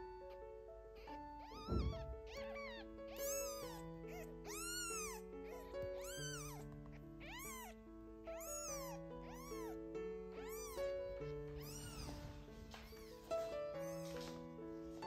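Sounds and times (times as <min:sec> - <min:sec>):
light background music: 0:00.0 - 0:15.0
kitten mewing: 0:01.0 - 0:12.2.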